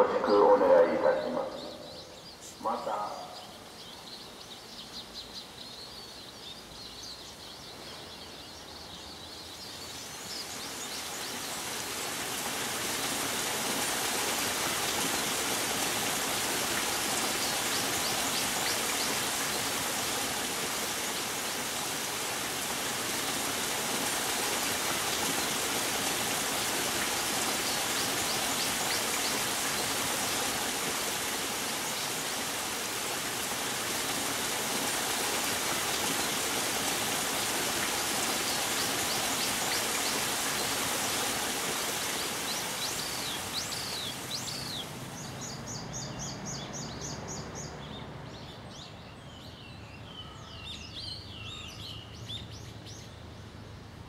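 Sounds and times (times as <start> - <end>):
birds chirping: 0.0 - 53.1
water splashing over rocks: 11.0 - 45.2.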